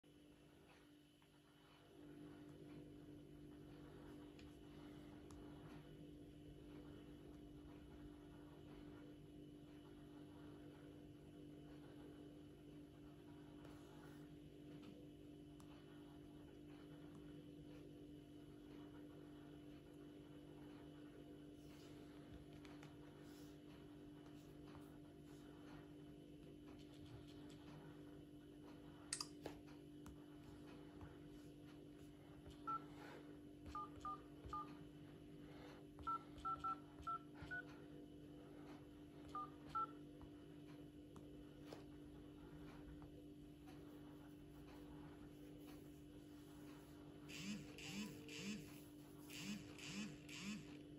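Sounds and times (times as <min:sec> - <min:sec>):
low electrical hum: 0:00.0 - 0:50.9
keypad dialing beeps: 0:32.6 - 0:32.9, 0:33.7 - 0:34.8, 0:36.0 - 0:37.7, 0:39.3 - 0:40.0.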